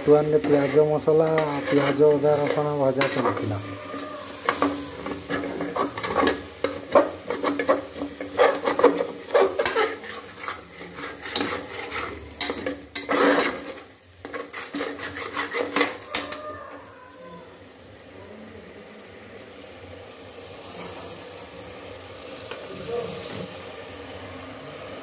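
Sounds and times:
spatula scraping a metal pot: 0:00.0 - 0:16.8.

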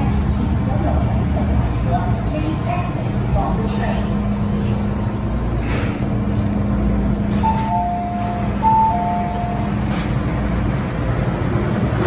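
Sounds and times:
train hum and rumble: 0:00.0 - 0:12.0
two-tone door-closing chime: 0:07.4 - 0:09.9.

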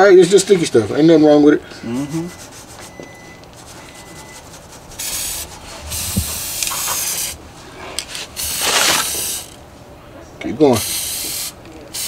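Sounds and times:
aerosol can spraying: 0:04.7 - 0:07.4, 0:08.4 - 0:09.6, 0:10.8 - 0:12.0.

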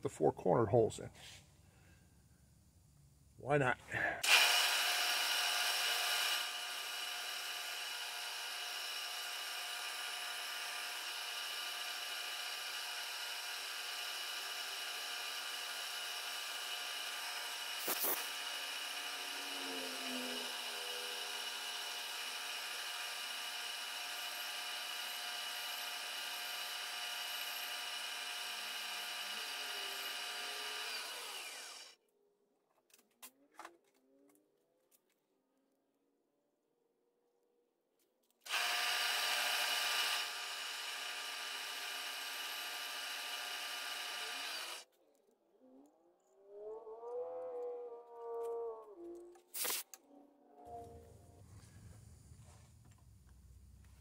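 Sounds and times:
milling machine spindle whine: 0:17.6 - 0:21.8, 0:28.5 - 0:31.9.

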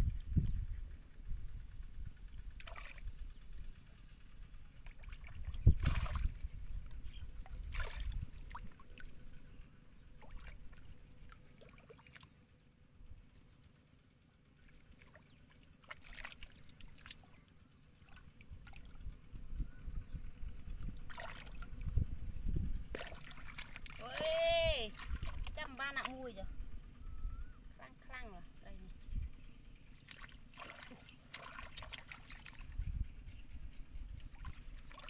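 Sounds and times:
low rumble: 0:00.0 - 0:11.4, 0:18.0 - 0:30.0
sharp water splashes: 0:02.6 - 0:03.0, 0:04.8 - 0:06.4, 0:07.7 - 0:09.0, 0:15.0 - 0:17.2, 0:21.1 - 0:21.8, 0:22.9 - 0:26.2, 0:30.0 - 0:32.7, 0:34.3 - 0:35.0
hands sloshing in muddy water: 0:02.6 - 0:03.2, 0:04.8 - 0:09.3, 0:10.2 - 0:12.4, 0:14.6 - 0:19.0, 0:21.0 - 0:22.0, 0:22.8 - 0:26.3, 0:29.9 - 0:32.8, 0:34.1 - 0:35.0.

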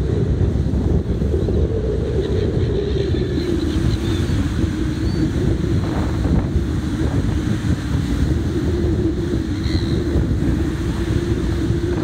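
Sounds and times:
wind buffeting microphone: 0:00.0 - 0:12.0
surf breaking on beach: 0:03.6 - 0:12.0.

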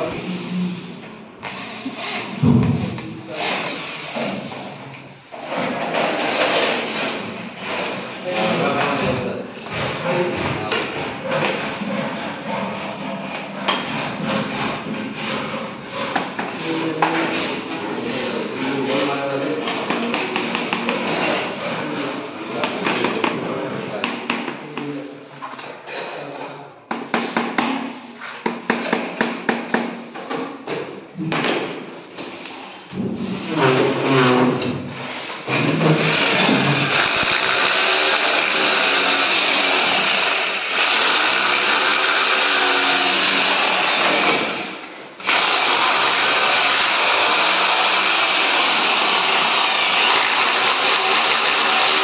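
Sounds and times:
electric drill boring: 0:36.0 - 0:52.0.

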